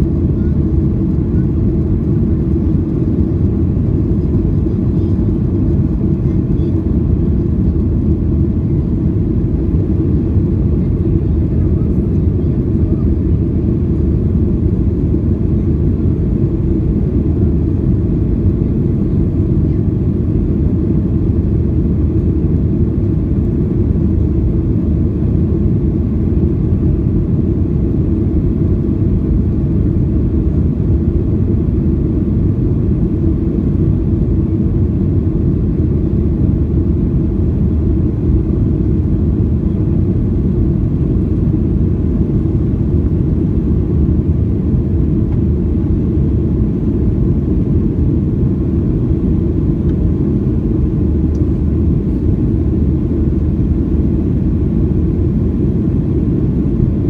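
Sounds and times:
jet engines roaring in cabin: 0:00.0 - 0:57.0.

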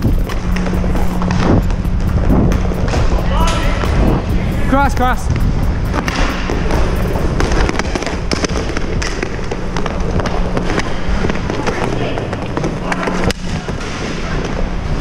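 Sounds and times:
inline skate wheels rolling: 0:00.0 - 0:04.5, 0:05.4 - 0:15.0
air rushing on helmet camera: 0:00.0 - 0:11.5
hockey sticks and puck clacking: 0:00.2 - 0:01.4, 0:05.9 - 0:15.0.

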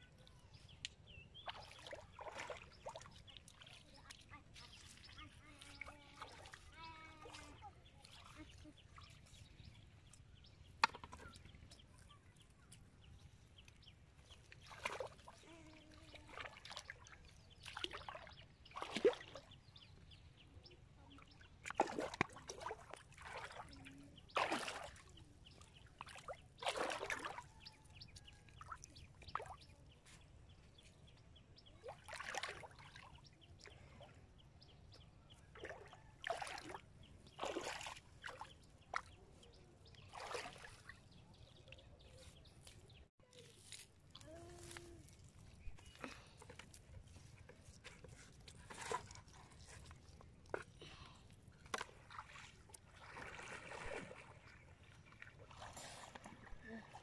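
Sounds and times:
river water splashing: 0:01.3 - 0:09.7, 0:14.2 - 0:20.2, 0:21.2 - 0:30.0, 0:31.6 - 0:34.1, 0:35.4 - 0:41.8, 0:43.6 - 0:57.0.

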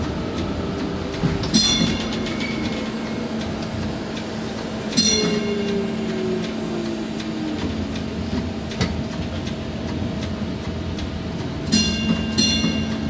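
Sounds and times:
low hum: 0:00.0 - 0:13.0
high ringing squeal: 0:04.8 - 0:07.2.

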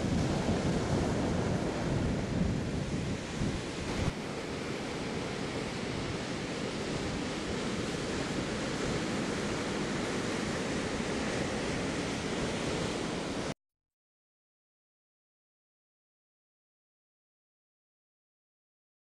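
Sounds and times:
ocean surf on beach: 0:00.0 - 0:13.6.

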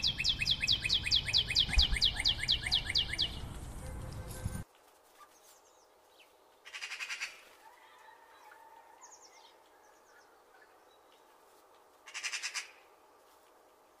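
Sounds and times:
bird chattering trills: 0:00.0 - 0:03.6
faint high bird chirps: 0:00.0 - 0:04.6.

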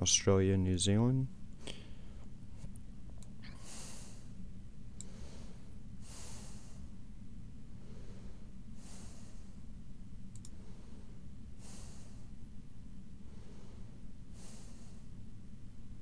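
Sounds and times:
steady low hum: 0:00.0 - 0:16.0
slow breaths close to microphone: 0:03.5 - 0:04.4, 0:05.0 - 0:07.0, 0:07.7 - 0:09.8, 0:10.5 - 0:12.4, 0:13.2 - 0:15.2.

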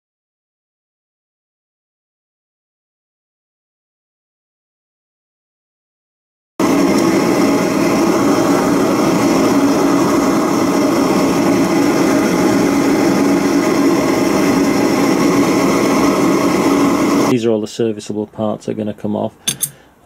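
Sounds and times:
machine droning hum: 0:06.6 - 0:17.5.

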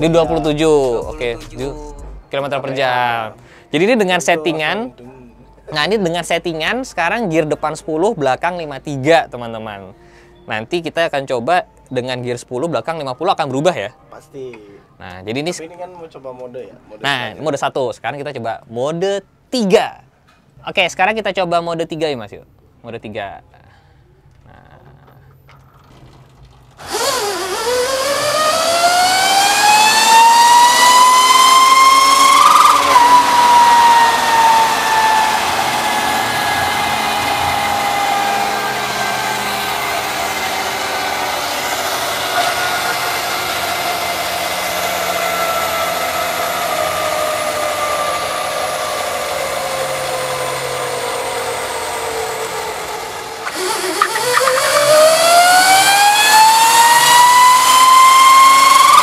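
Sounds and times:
electric drivetrain whine: 0:26.7 - 0:59.0.

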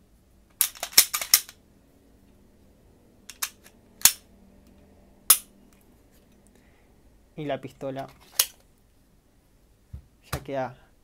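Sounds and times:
pistol slide clacking: 0:00.6 - 0:01.6, 0:03.3 - 0:04.2.

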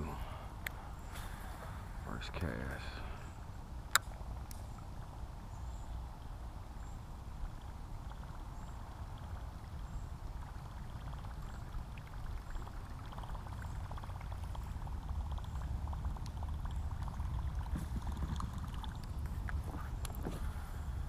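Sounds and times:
low steady rumble: 0:00.0 - 0:21.0
water lapping against a kayak hull: 0:07.4 - 0:21.0.

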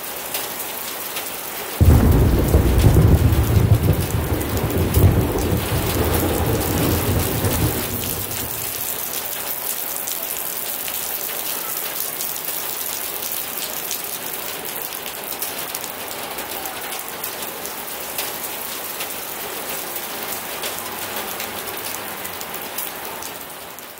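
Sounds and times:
heavy rain falling: 0:00.0 - 0:23.9
low thunder rumble: 0:01.8 - 0:09.0.

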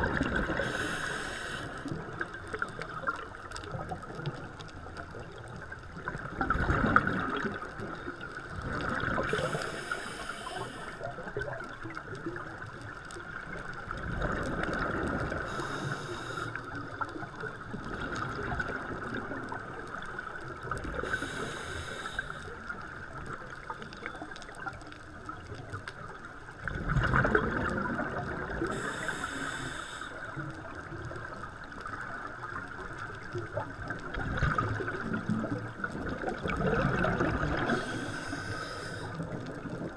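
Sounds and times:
exhaled air bubbling: 0:00.0 - 0:39.9
regulator inhalation hiss: 0:00.6 - 0:02.0, 0:09.3 - 0:11.1, 0:15.5 - 0:16.6, 0:21.0 - 0:22.5, 0:28.7 - 0:30.4, 0:37.7 - 0:39.2.

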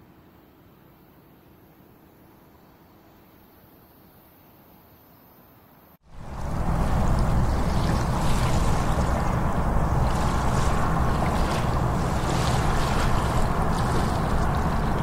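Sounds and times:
water lapping against pier: 0:06.1 - 0:15.0
wind on microphone: 0:06.1 - 0:15.0.

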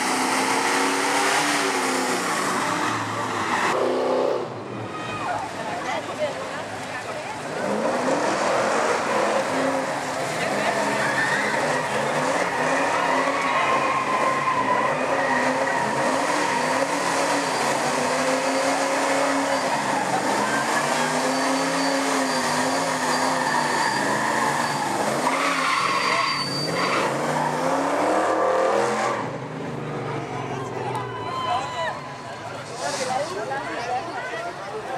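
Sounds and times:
car engine revving hard: 0:00.0 - 0:04.6, 0:07.4 - 0:29.5
tyres squealing: 0:08.7 - 0:27.9.

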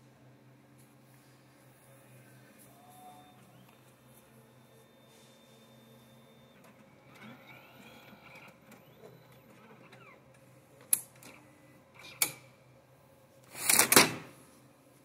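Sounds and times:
motor whirring and whining: 0:02.6 - 0:10.5.

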